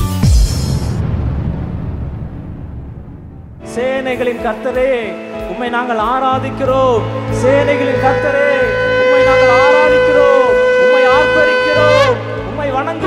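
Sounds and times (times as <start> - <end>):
ram's horn blasts: 7.1 - 13.0.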